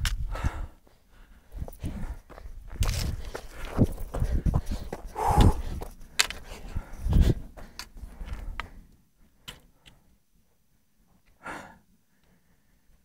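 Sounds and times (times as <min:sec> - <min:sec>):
boots on stone: 0:01.6 - 0:07.9
short breath: 0:04.7 - 0:05.8, 0:11.4 - 0:12.6.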